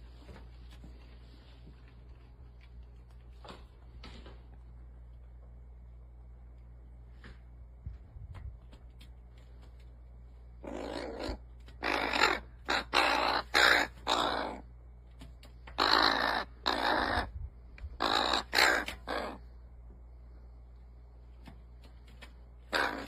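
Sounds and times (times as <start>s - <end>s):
crow cawing: 10.6s - 14.6s, 15.8s - 17.3s, 18.0s - 19.4s, 22.7s - 23.0s.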